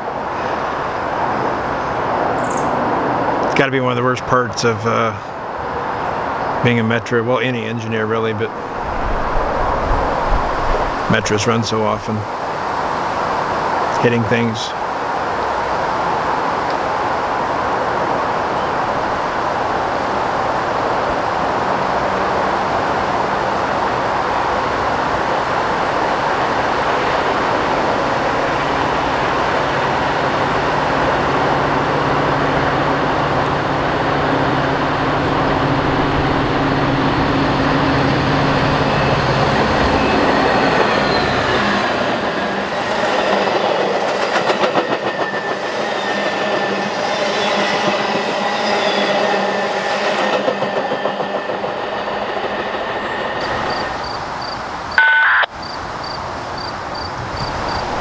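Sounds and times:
train wheels rumbling on rail: 14.7s - 55.0s
wheel squeal: 38.9s - 41.8s, 52.2s - 54.2s.

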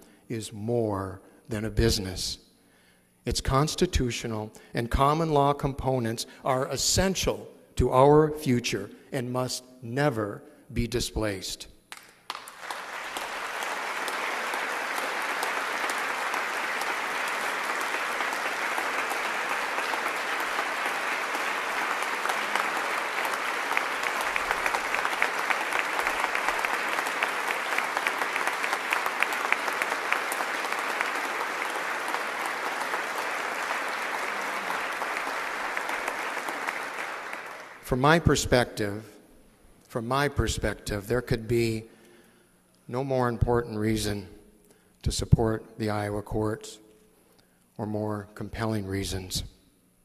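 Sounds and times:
audience applauding: 11.9s - 37.8s.

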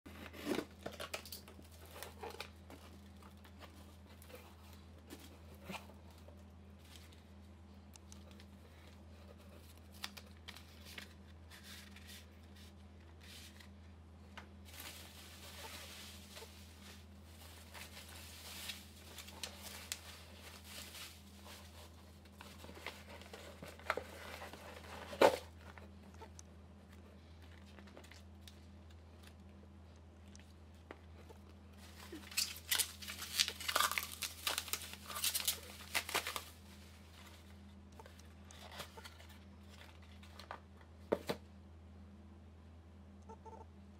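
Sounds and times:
steady low hum: 0.1s - 43.9s
plastic packaging crinkling: 14.7s - 25.9s, 31.8s - 40.6s.

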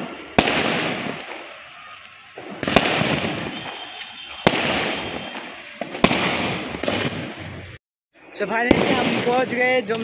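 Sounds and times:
firework shells bursting: 0.0s - 7.4s
firework crackle: 0.0s - 10.0s.

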